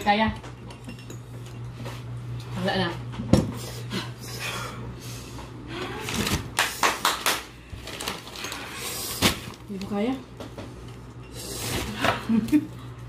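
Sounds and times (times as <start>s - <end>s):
dishes and utensils clattering: 0.0s - 1.7s
steady low hum: 0.0s - 13.0s.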